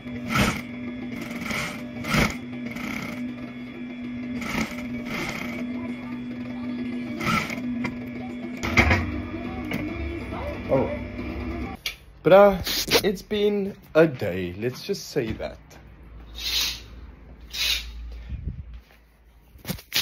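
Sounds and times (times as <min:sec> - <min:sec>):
sewing machine stitching: 0:00.0 - 0:03.6, 0:04.2 - 0:08.0
sewing machine motor hum: 0:00.0 - 0:11.8.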